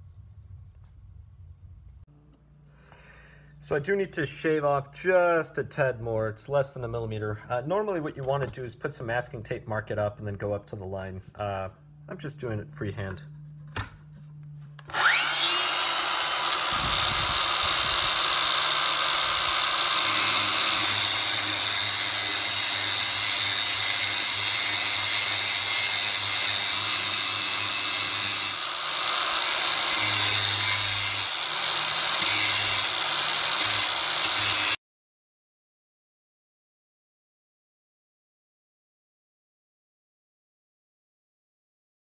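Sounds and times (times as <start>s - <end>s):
angle grinder grinding metal: 14.8s - 34.8s.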